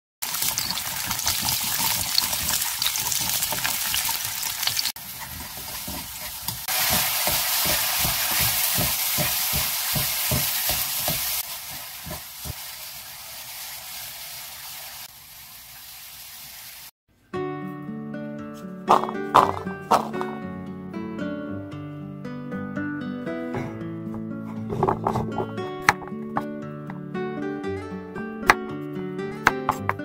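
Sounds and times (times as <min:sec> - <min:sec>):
garlic sizzling in hot oil: 0:00.2 - 0:16.9
scrapes and knocks against pan: 0:23.6 - 0:26.1.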